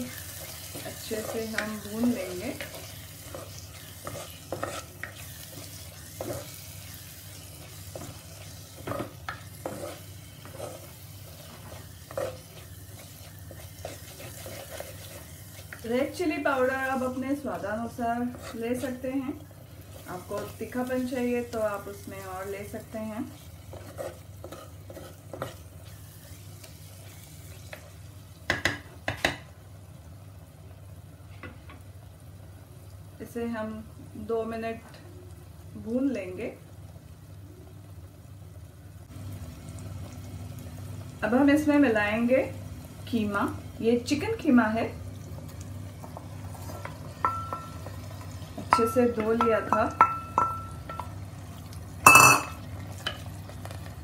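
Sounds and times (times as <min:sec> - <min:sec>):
masala sizzling in oil: 0:00.0 - 0:54.0
spatula scraping a pot: 0:00.1 - 0:15.9, 0:17.5 - 0:19.0, 0:23.2 - 0:26.0.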